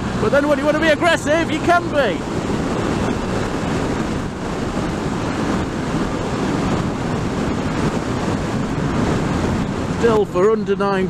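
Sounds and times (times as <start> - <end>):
motorcycle engine running: 0.0 - 10.8
wind buffeting microphone: 0.0 - 11.0.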